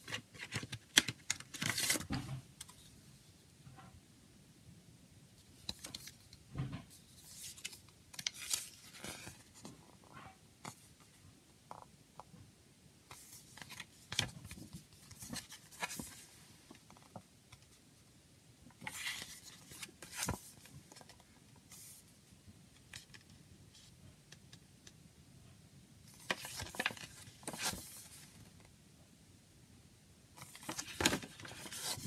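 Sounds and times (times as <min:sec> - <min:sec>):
paper pages rustling: 0:00.0 - 0:02.0, 0:07.1 - 0:09.8, 0:13.1 - 0:17.8, 0:18.8 - 0:22.0, 0:26.1 - 0:28.4, 0:30.4 - 0:32.0.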